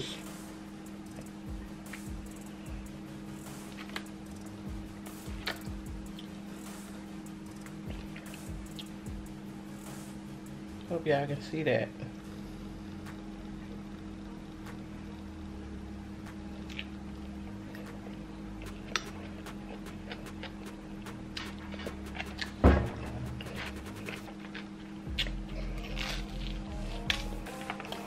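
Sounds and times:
steady low hum: 0:00.0 - 0:28.0
chewing: 0:16.6 - 0:22.6, 0:23.4 - 0:28.0
loud thump: 0:22.6 - 0:24.0.

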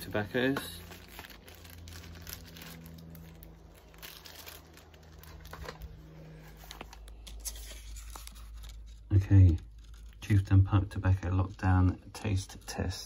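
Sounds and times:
plastic bags rustling: 0:00.0 - 0:10.3.

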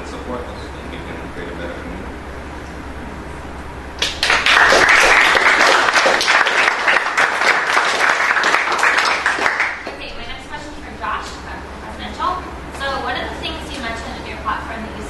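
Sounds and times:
small group applauding: 0:04.0 - 0:10.1.

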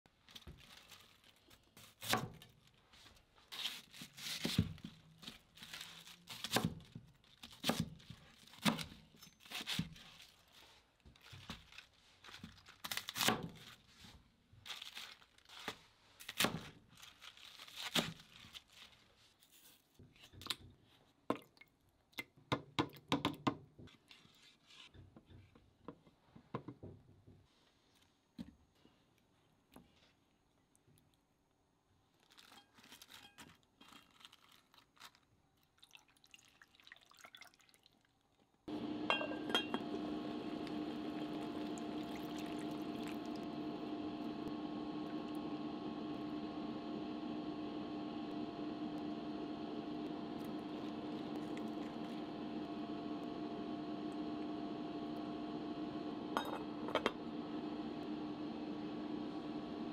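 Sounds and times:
knife cutting crunchy cabbage: 0:03.6 - 0:10.2.

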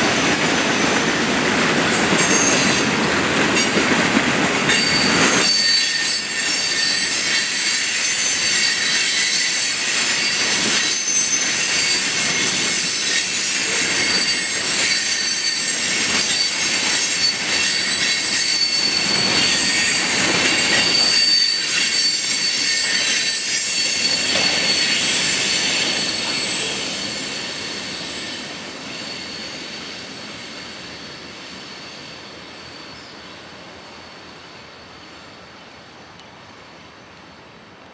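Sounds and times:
freight train rolling past: 0:00.0 - 0:37.8
high-pitched wheel squeal: 0:04.7 - 0:33.3.

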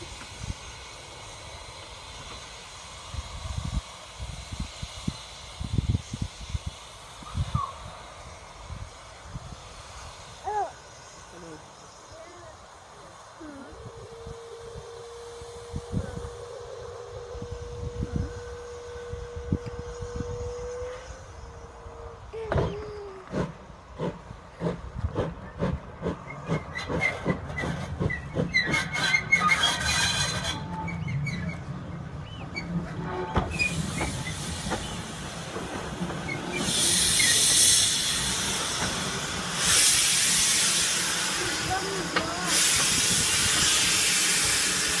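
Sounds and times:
loud hissing steam: 0:00.0 - 0:45.0
steam locomotive chuffing: 0:00.0 - 0:45.0
clanking on rails: 0:22.4 - 0:40.4, 0:41.5 - 0:43.8.

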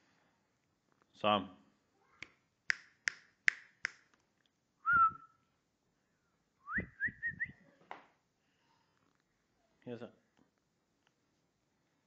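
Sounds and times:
finger snap: 0:02.2 - 0:04.1
person whistling: 0:04.8 - 0:05.4, 0:06.6 - 0:07.6.

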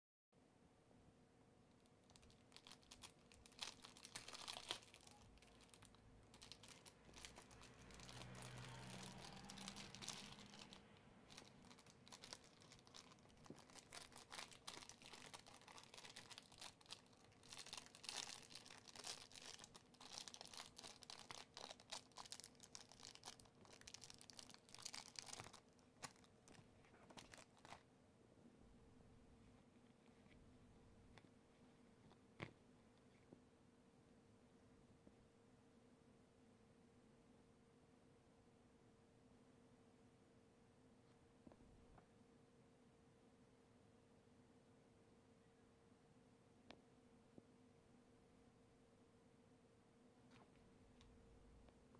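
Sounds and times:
plastic bag crinkling: 0:02.0 - 0:27.8.

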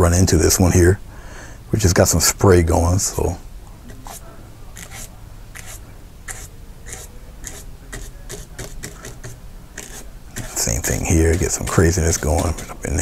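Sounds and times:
paintbrush scraping on canvas: 0:03.9 - 0:04.2, 0:04.8 - 0:13.0.

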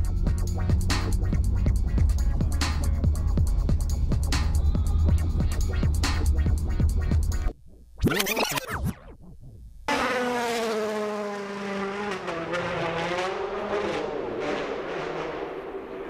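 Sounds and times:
engine pitch rising and falling: 0:08.0 - 0:16.0
rally car engine passing: 0:09.9 - 0:16.0.

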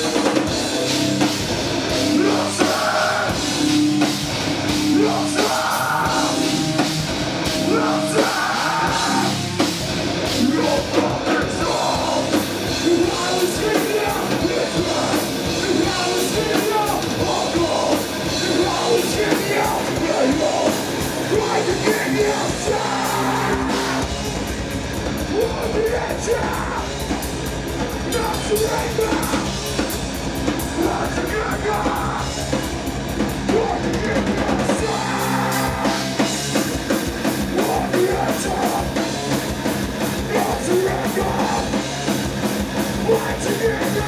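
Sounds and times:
heavy metal band playing: 0:00.0 - 0:44.0
shouted vocals: 0:02.1 - 0:03.4, 0:04.9 - 0:06.4, 0:07.6 - 0:09.4, 0:10.4 - 0:24.1, 0:25.3 - 0:27.0, 0:30.8 - 0:32.3, 0:33.5 - 0:36.2, 0:37.5 - 0:39.0, 0:40.2 - 0:41.8, 0:43.0 - 0:44.0.

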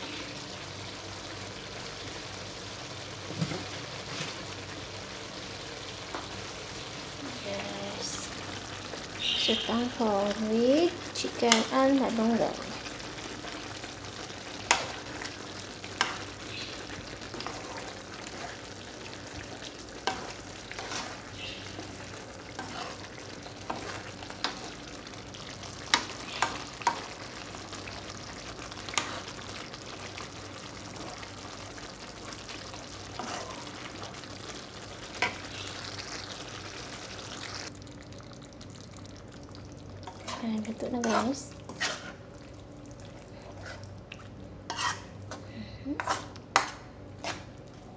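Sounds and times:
soup simmering in a pan: 0:08.2 - 0:40.8.

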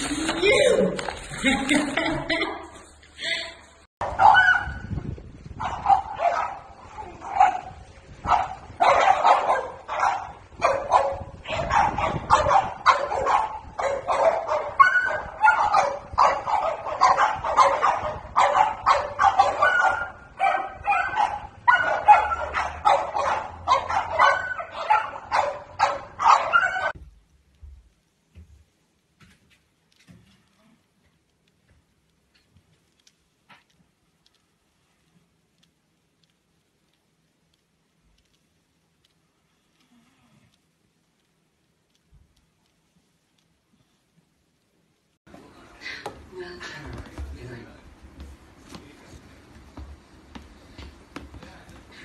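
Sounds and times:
dog barking: 0:04.0 - 0:04.9, 0:05.6 - 0:27.0.

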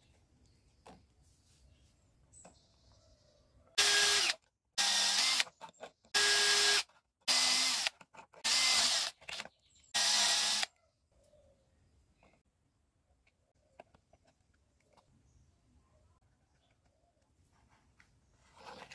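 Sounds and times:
cordless drill drilling metal: 0:03.8 - 0:05.5, 0:06.1 - 0:09.4, 0:10.0 - 0:10.7.

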